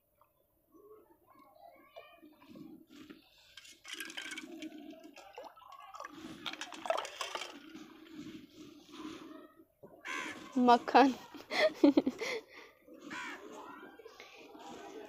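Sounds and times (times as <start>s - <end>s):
liquid pouring and splashing: 3.5s - 8.5s.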